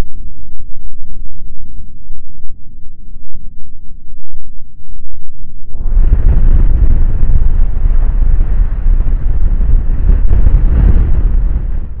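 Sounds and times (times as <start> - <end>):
wind buffeting microphone: 5.7 - 12.0.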